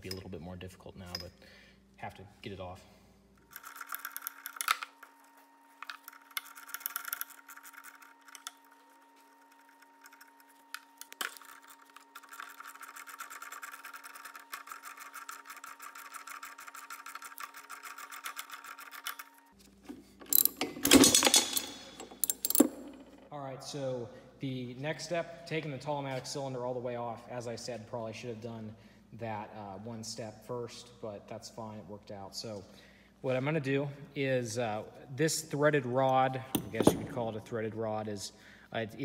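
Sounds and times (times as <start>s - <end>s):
faint steady hum: 0.0s - 16.8s, 19.2s - 39.0s
metal clinks: 20.2s - 23.2s.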